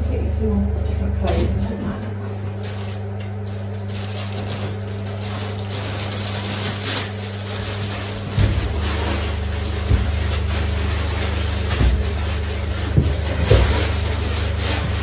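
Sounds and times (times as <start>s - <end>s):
potter's wheel motor humming: 0.0s - 15.0s.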